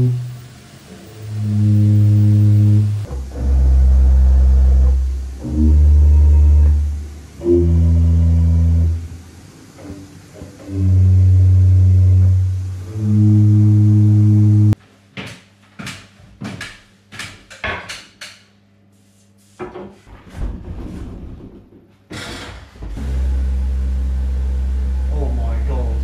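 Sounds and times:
low organ pipe notes: 0.0 - 0.5, 1.2 - 14.8, 23.0 - 26.0
steady low drone: 0.0 - 14.8, 23.0 - 26.0
knocks and clatter of pipe: 15.2 - 18.4, 19.6 - 21.9.

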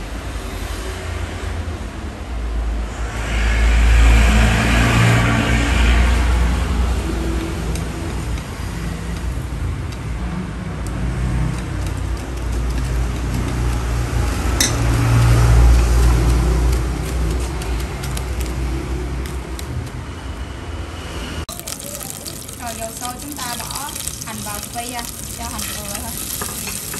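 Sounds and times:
passing traffic rumble: 0.0 - 26.9
utensil clinking on metal pot: 14.6 - 15.0, 21.6 - 26.9.

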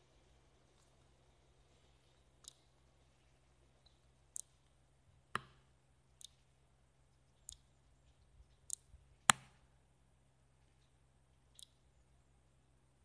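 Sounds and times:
faint low hum: 0.0 - 13.0
sharp clicks and ticks: 2.4 - 2.8, 4.3 - 4.8, 5.4 - 6.4, 7.4 - 7.8, 8.5 - 9.5, 11.5 - 11.8.

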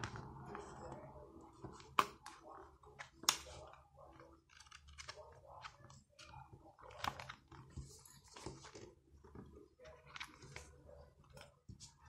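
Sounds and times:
paper pages rustling: 2.9 - 12.0.

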